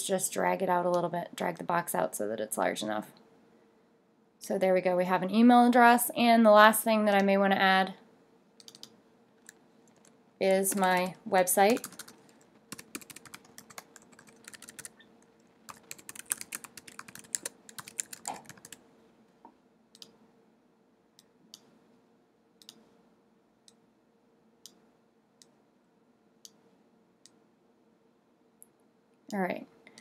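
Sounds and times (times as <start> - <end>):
typing on computer keyboard: 8.6 - 15.0, 15.6 - 18.8.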